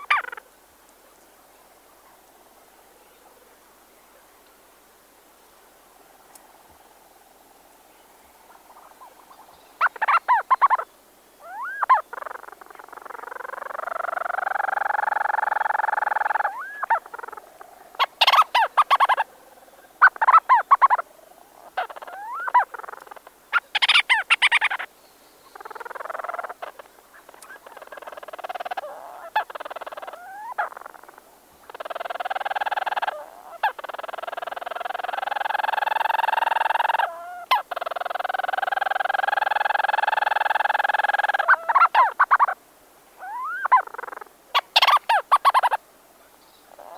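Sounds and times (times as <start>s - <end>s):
birds churring purrs: 8.5s - 10.8s, 11.4s - 24.9s, 25.5s - 42.6s, 43.2s - 45.8s, 46.5s - 46.9s.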